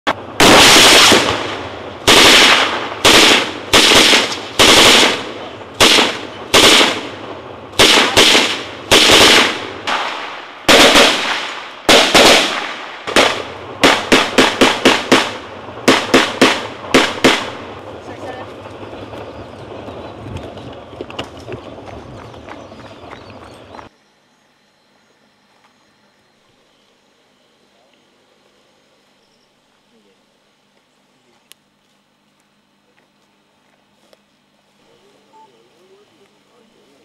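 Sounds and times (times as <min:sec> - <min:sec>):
gunfire with echoing reports: 0:00.1 - 0:18.9.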